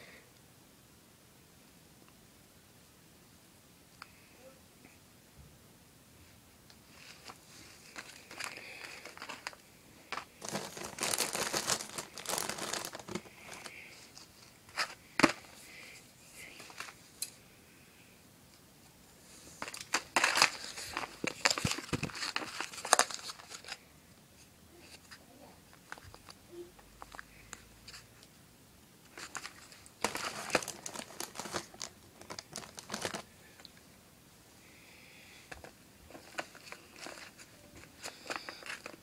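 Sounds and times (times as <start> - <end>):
clay and plastic crinkling: 6.8 - 17.4, 19.4 - 23.8, 24.8 - 28.3, 29.0 - 33.8, 35.5 - 39.0.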